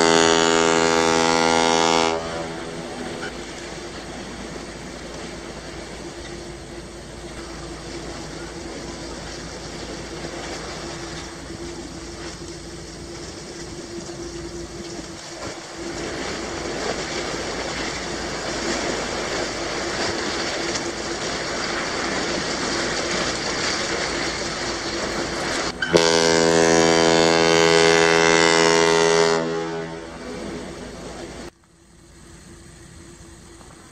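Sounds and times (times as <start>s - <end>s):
ship horn blast: 0.0s - 4.3s, 23.9s - 31.5s
steady rushing noise: 0.0s - 25.9s, 29.4s - 31.5s.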